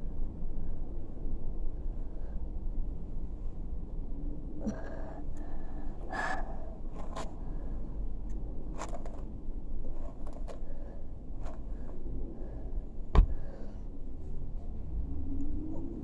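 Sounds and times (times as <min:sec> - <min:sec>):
low steady hum: 0:00.0 - 0:16.0
rustles of small things handled: 0:06.8 - 0:12.0.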